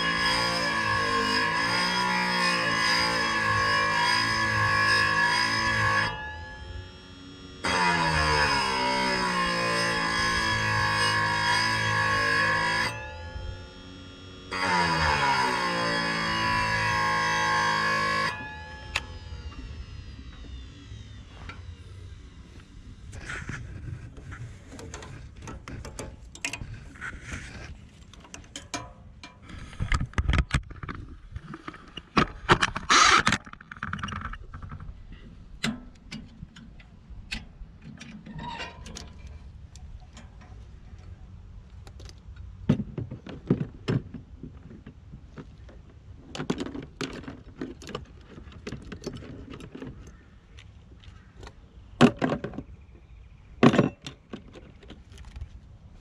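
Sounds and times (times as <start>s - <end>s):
clatter of tools and metal parts: 23.1s - 52.8s, 53.6s - 55.7s.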